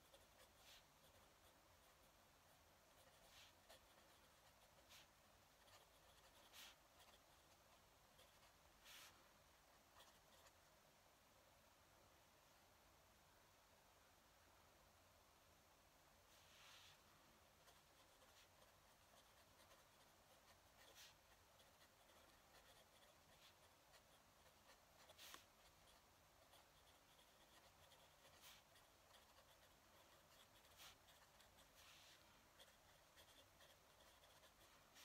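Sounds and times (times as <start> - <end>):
pen nib writing on paper: 0.0 - 2.0, 2.9 - 9.1, 10.0 - 10.6, 17.6 - 35.0.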